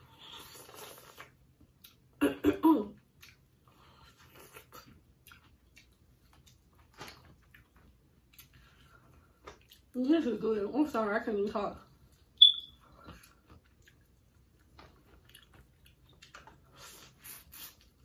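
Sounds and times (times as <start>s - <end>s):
soft chewing: 0.0s - 2.2s, 3.0s - 10.4s, 11.8s - 18.0s
cough-like vocal burst: 2.2s - 2.9s.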